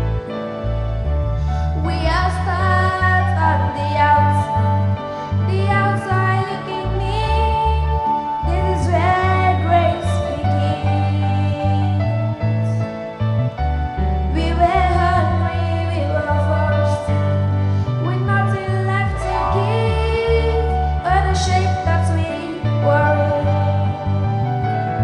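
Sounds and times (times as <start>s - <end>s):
instrumental backing with bass: 0.0s - 25.0s
girl singing gospel: 1.8s - 4.9s, 5.5s - 12.8s, 14.3s - 17.2s, 18.0s - 24.0s.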